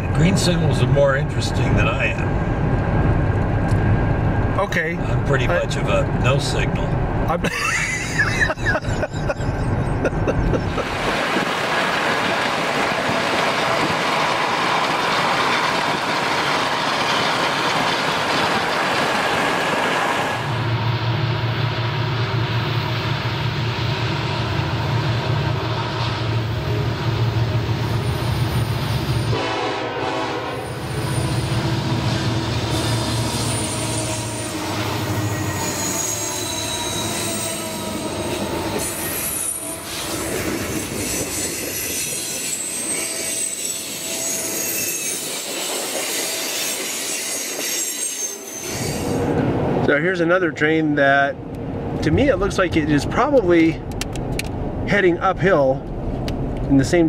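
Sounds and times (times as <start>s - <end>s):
diesel locomotive drone: 0.0s - 57.0s
broad rushing noise: 10.3s - 21.0s
high wheel squeal: 30.5s - 49.3s.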